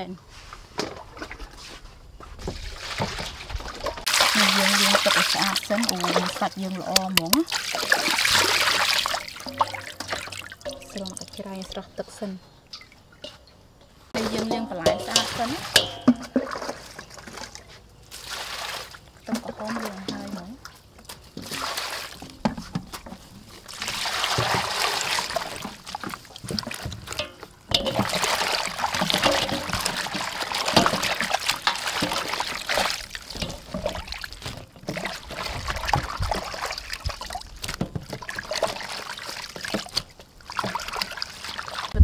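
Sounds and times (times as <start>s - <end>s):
water splashing in a steel bowl: 2.6s - 42.0s
hands swishing vegetables in water: 14.2s - 15.8s, 16.4s - 42.0s.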